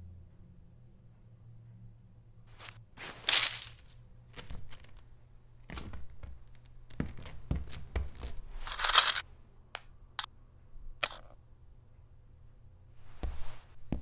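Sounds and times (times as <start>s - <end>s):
low steady hum: 0.0s - 14.0s
soft knocks and rustles: 13.0s - 14.0s.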